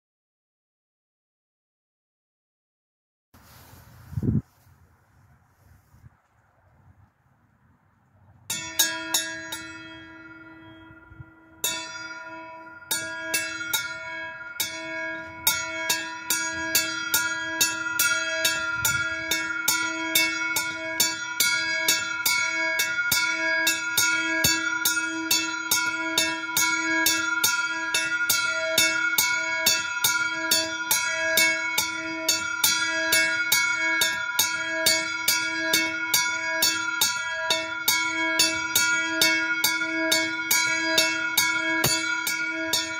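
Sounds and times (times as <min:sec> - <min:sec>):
small bell ringing: 0:08.5 - 0:42.9.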